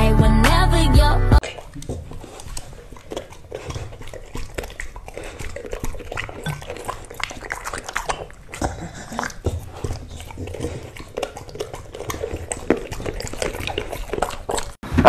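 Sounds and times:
dog chewing and lip smacking: 1.4s - 14.8s.

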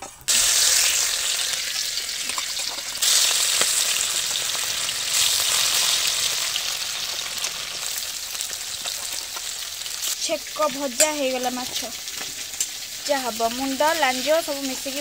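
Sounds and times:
fish sizzling in hot oil: 0.0s - 15.0s
tongs clicking against pan: 10.9s - 12.8s.

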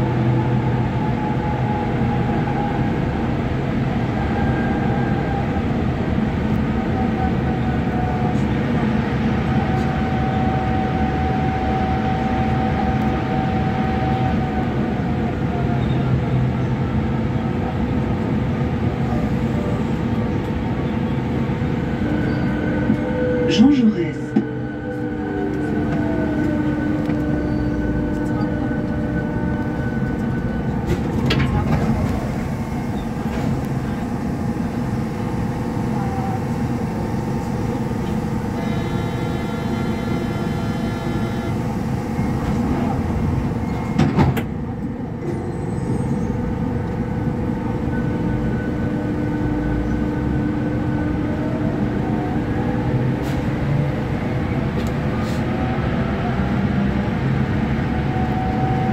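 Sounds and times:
train running gear rumble: 0.0s - 58.9s
traction motor whine: 19.0s - 58.9s.

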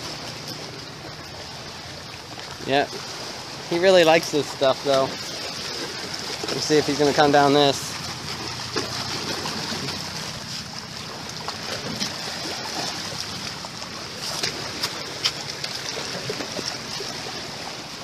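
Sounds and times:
small waves washing against rocks: 0.0s - 18.0s.

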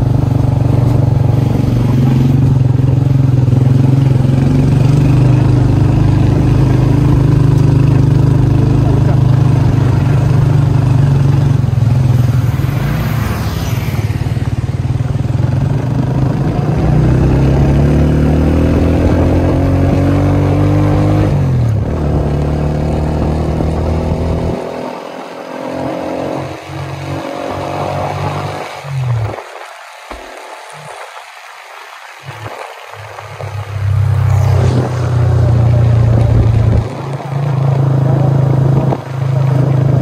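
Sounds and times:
small motorcycle engine accelerating: 0.0s - 29.6s.

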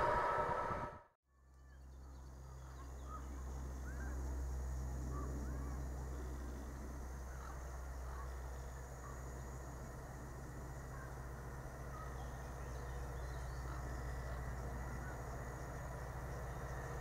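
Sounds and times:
passing train rumble: 0.0s - 1.1s, 2.6s - 17.0s
diesel locomotive engine drone: 0.0s - 17.0s
birds chirping: 10.8s - 17.0s.

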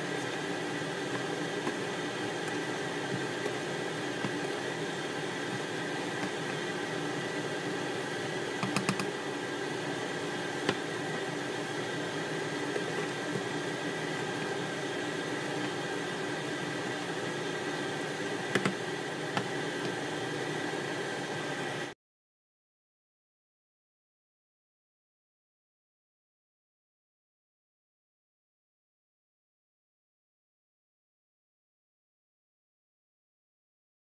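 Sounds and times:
food sizzling in pan: 0.0s - 21.9s.

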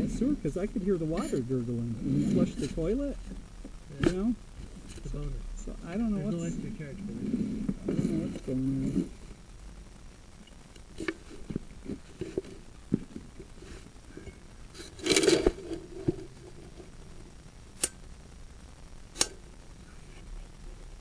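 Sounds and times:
scraping rustle: 0.0s - 3.4s, 6.2s - 9.4s, 10.9s - 17.2s.

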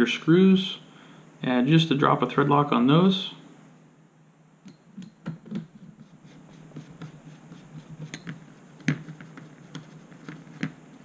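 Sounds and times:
screwdriver scratching: 5.5s - 10.7s.

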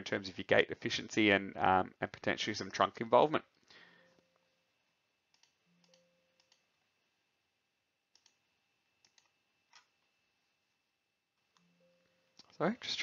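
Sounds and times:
faint computer clicks: 5.3s - 6.7s, 8.1s - 8.4s.

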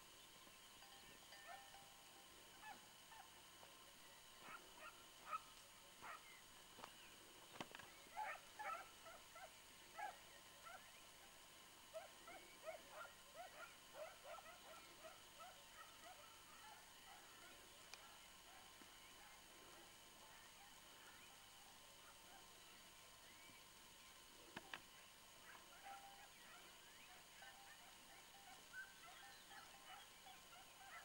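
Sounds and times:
distant hound baying: 1.4s - 1.8s, 2.5s - 3.5s, 4.4s - 6.4s, 8.1s - 10.9s, 11.9s - 17.6s, 25.4s - 31.0s.

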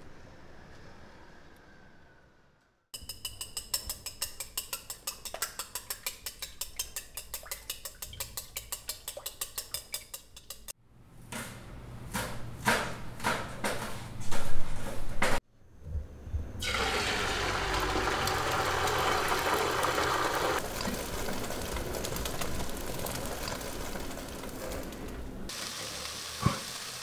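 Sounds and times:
chopsticks beating eggs in a bowl: 3.0s - 10.8s.

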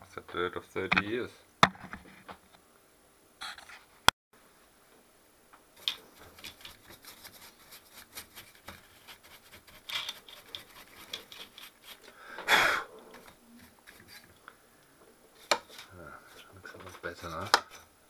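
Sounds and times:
brush scrubbing inside metal case: 5.8s - 12.1s, 13.6s - 14.4s, 15.4s - 17.9s.

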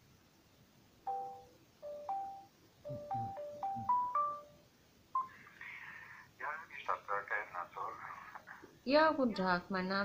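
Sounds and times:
phone line noise: 1.1s - 4.5s
electronic chime hold melody: 1.1s - 4.6s.

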